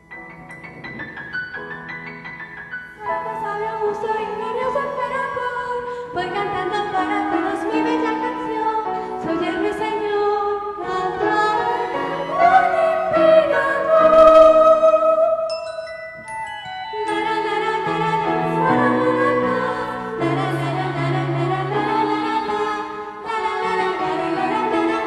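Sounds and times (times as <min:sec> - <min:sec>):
person singing: 0:03.0 - 0:16.3, 0:16.9 - 0:25.0
instrumental accompaniment: 0:10.8 - 0:25.0.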